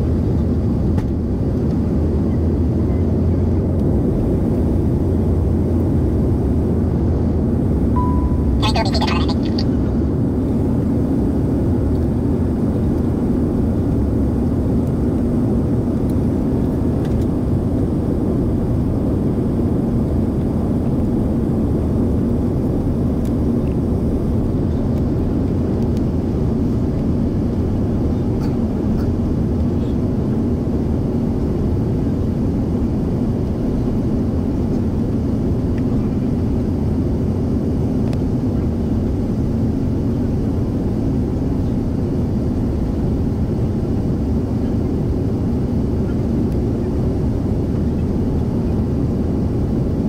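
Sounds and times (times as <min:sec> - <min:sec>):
airplane cabin engine drone: 0:00.0 - 0:50.0.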